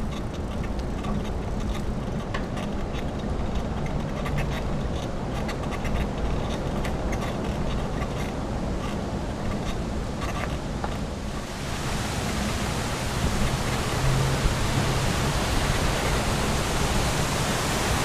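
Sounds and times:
bicycle low rumble: 0.0 - 17.4
fountain water splashing: 11.3 - 18.0.

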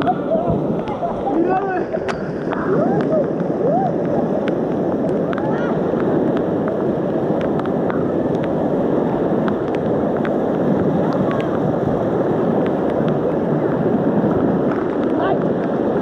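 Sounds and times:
river rapids rushing: 0.0 - 16.0.

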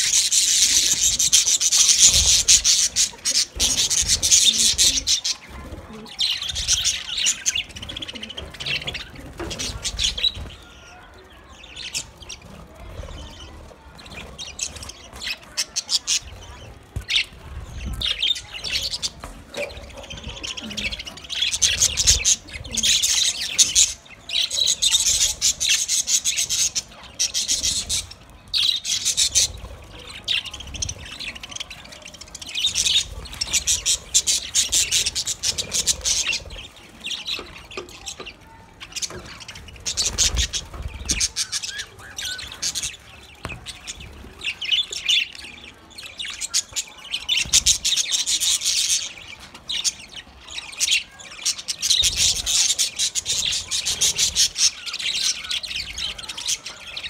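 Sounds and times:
budgerigars chirping and warbling: 0.0 - 57.0.

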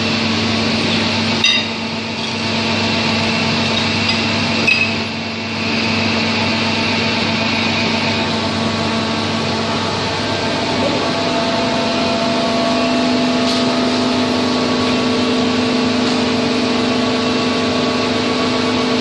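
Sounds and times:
drilling rig humming: 0.0 - 19.0.

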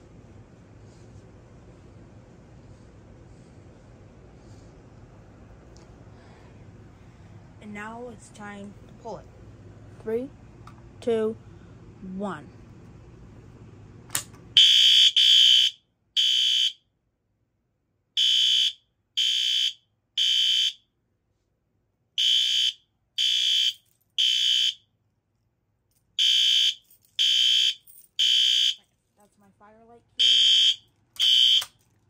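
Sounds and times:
fire alarm horn blasts: 14.6 - 16.8, 18.2 - 20.8, 22.2 - 24.8, 26.2 - 28.8, 30.2 - 31.8.

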